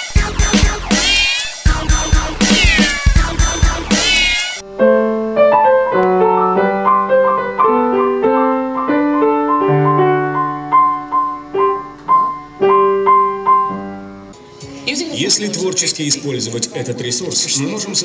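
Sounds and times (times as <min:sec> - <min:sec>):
solo piano music: 0:04.6 - 0:15.6.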